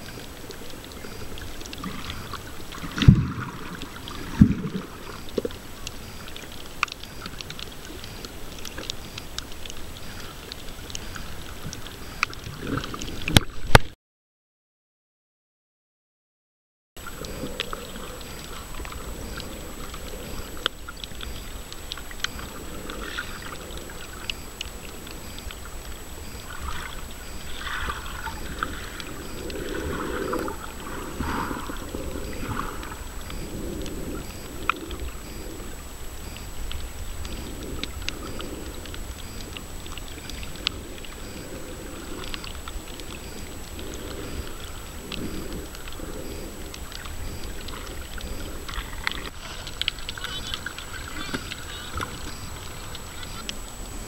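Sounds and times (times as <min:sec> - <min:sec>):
muffled underwater rumble: 0:00.0 - 0:13.8, 0:17.0 - 0:54.0
water sloshing: 0:17.0 - 0:54.0.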